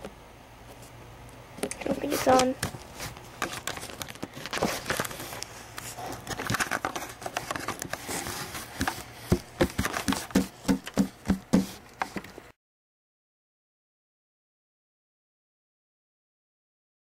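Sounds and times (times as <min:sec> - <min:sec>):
handling noise rustling and knocks: 0:01.8 - 0:12.5.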